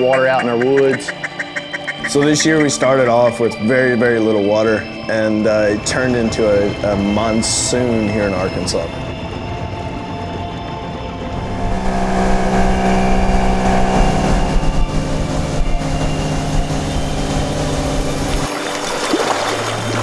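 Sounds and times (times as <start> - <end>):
boat motor running: 7.8 - 20.0.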